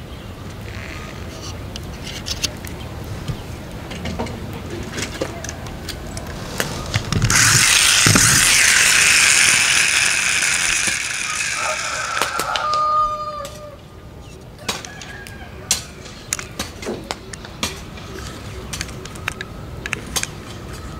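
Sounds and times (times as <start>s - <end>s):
toy truck gears whirring: 5.8s - 12.8s.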